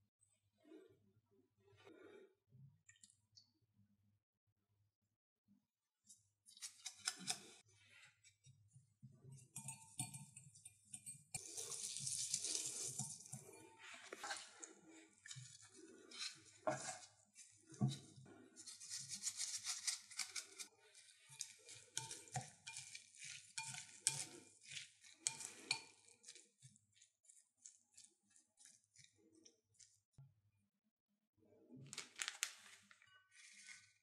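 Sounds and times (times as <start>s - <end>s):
utensils clicking and scraping bowl: 6.5s - 7.6s, 9.3s - 30.0s.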